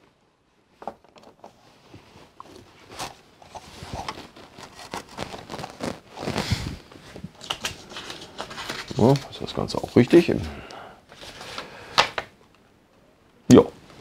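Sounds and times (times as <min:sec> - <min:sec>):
plastic scraping rub: 0:02.5 - 0:09.2.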